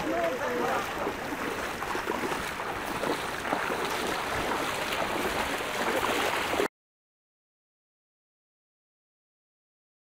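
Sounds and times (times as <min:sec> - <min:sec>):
floodwater lapping and sloshing: 0:00.0 - 0:06.7.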